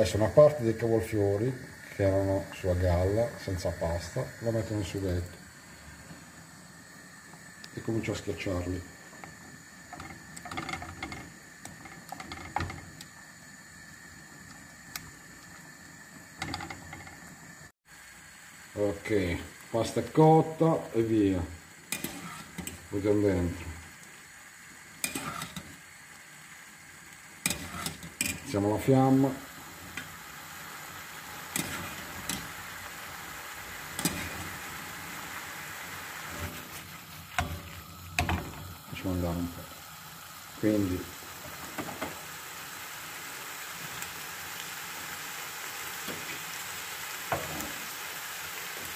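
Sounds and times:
food sizzling in a pan: 0.0s - 48.9s
wooden spoon scraping a pan: 21.9s - 22.8s, 25.0s - 25.7s, 27.4s - 28.5s, 31.5s - 32.5s, 36.2s - 37.8s.

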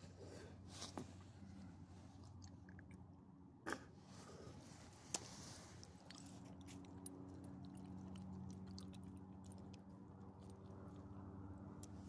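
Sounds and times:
dog chewing clicks: 6.1s - 12.0s.

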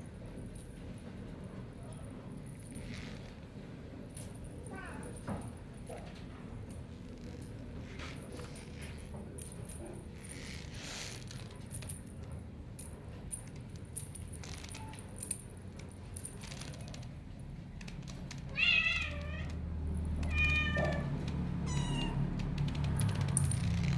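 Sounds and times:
kitten meowing: 18.5s - 19.6s, 20.2s - 22.3s.

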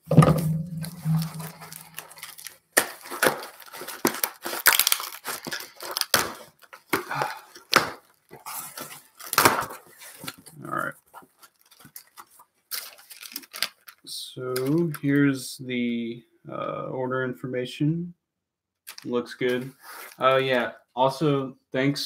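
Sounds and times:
packing tape ripping: 1.2s - 9.8s, 12.7s - 13.9s.

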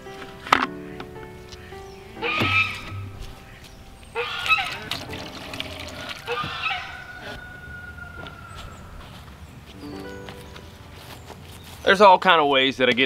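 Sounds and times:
faint background music: 0.0s - 13.0s
farm fowl calling: 0.8s - 4.9s, 5.8s - 9.5s.

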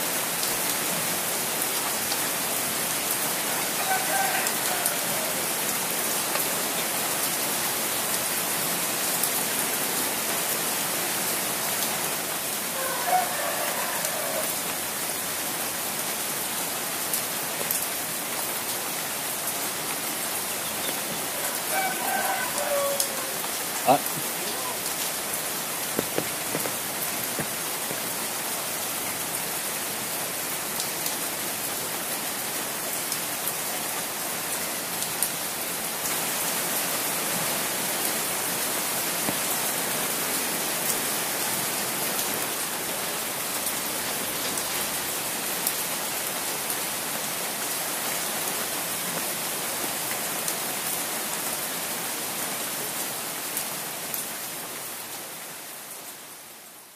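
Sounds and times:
steady rain falling: 0.0s - 56.9s
single raindrop hits: 25.9s - 28.1s.

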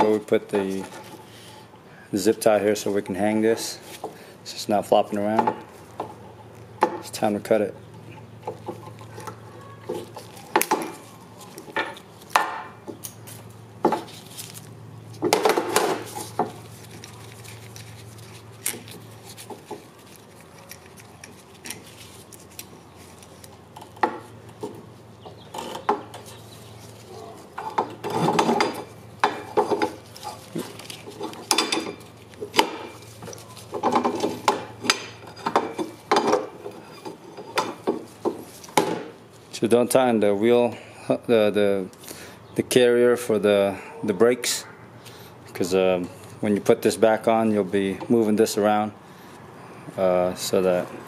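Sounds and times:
metal clinks and scraping: 27.6s - 38.7s.

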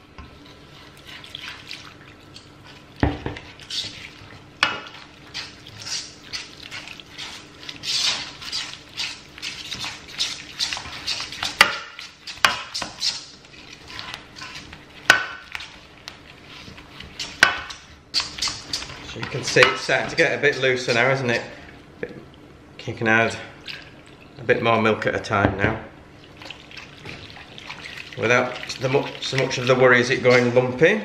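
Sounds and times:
whisk scraping in pan: 0.2s - 21.7s, 26.4s - 30.6s
whisk knocking against pan: 9.0s - 13.2s.

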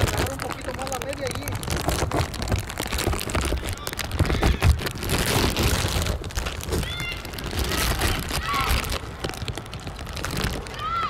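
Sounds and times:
distant shouts: 6.7s - 9.2s, 10.5s - 11.0s.

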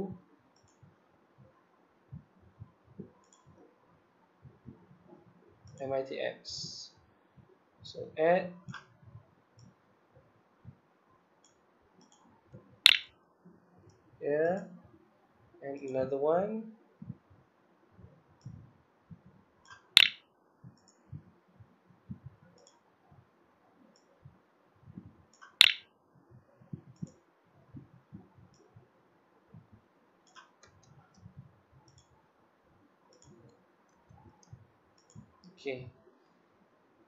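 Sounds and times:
computer mouse clicking: 12.9s - 13.1s, 19.7s - 20.2s, 25.3s - 25.8s, 31.9s - 32.2s
soft low thumps: 17.0s - 17.4s.

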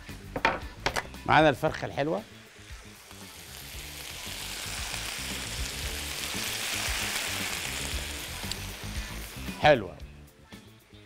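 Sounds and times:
soft background music: 0.0s - 11.0s
vegetables sizzling in a pan: 1.8s - 9.8s.

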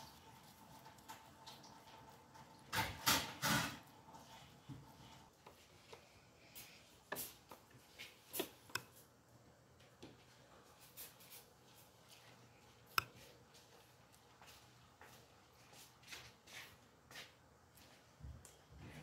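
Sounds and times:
pastry brush swishing on dough: 10.6s - 18.2s.

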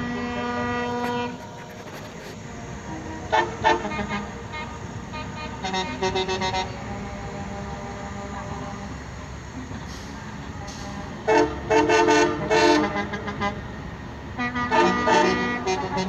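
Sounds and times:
passing trucks rumbling: 0.0s - 16.0s
truck horns: 0.0s - 16.0s.

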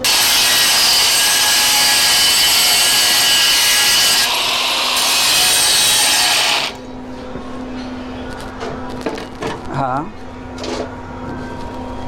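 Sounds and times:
angle grinder grinding steel: 0.0s - 6.8s.

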